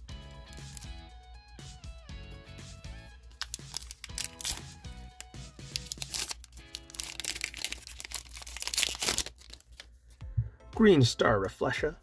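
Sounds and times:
background music: 0.0s - 12.0s
foil pack crinkling and tearing: 0.5s - 0.9s, 3.4s - 10.0s.

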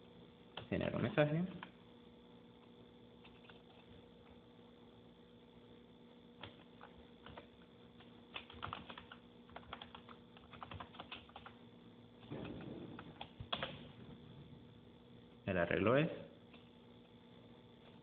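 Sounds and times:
faint keyboard typing: 2.6s - 4.4s, 6.4s - 11.6s, 12.2s - 14.0s.

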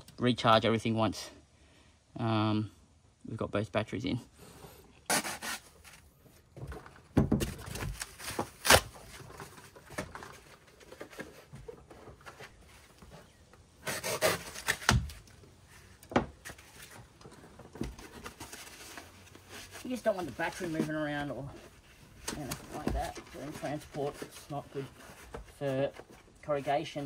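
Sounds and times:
foam pieces rubbing and scraping: 5.1s - 6.3s, 7.6s - 27.0s.

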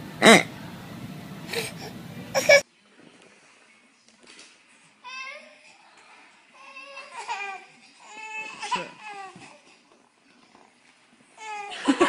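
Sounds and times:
baby laughing in squeals: 2.4s - 2.6s.

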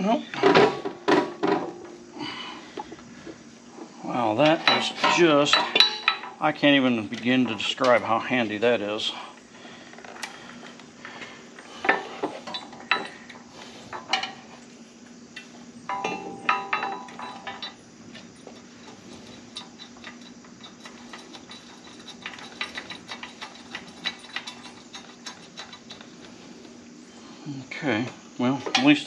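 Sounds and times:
metal parts knocking and clinking: 4.4s - 6.4s, 15.9s - 26.2s
hand ratchet clicking: 19.5s - 26.1s.

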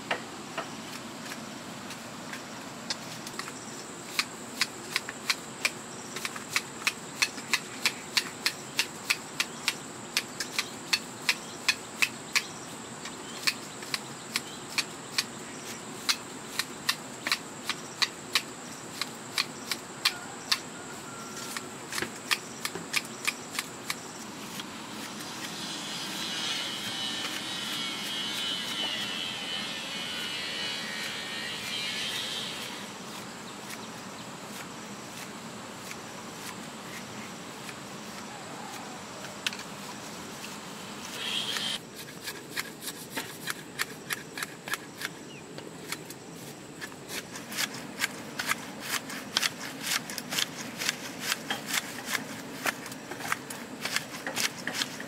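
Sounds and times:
scratchy rasping: 24.5s - 33.8s, 41.0s - 45.2s.

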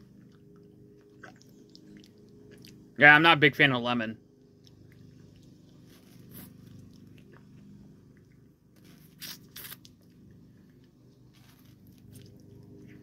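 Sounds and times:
mouth biting and sucking ice pop: 8.8s - 10.2s.

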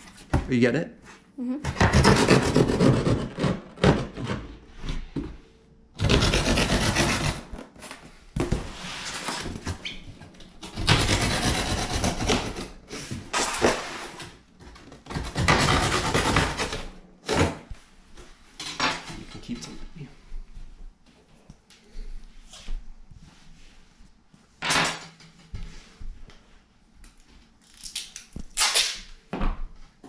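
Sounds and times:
knife sawing through cardboard: 1.8s - 4.4s, 6.0s - 7.5s, 10.7s - 12.8s, 15.1s - 16.9s.

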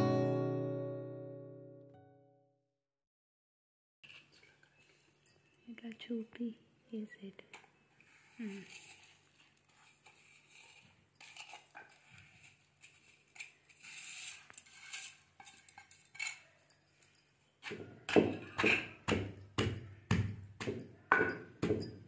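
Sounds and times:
steel plate scraping stone mortar: 8.1s - 16.8s, 17.6s - 19.7s
pestle pounding in stone mortar: 17.6s - 22.0s.

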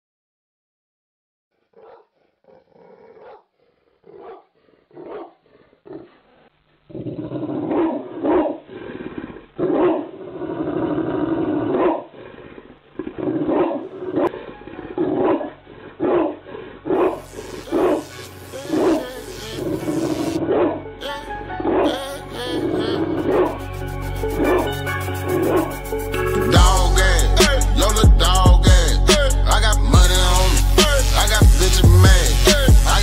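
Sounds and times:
dog barking and growling slowed: 1.6s - 22.0s, 22.6s - 25.8s.

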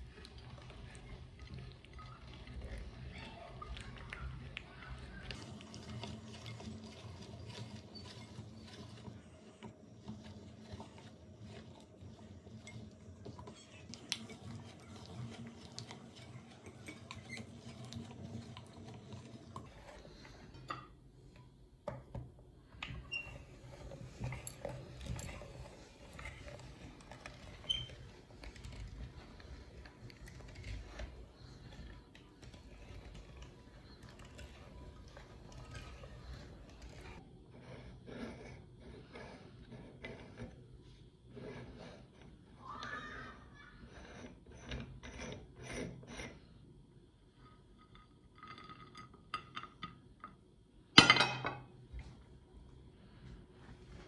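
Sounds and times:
meat grinder clicking and creaking: 0.0s - 20.3s, 22.8s - 37.2s.

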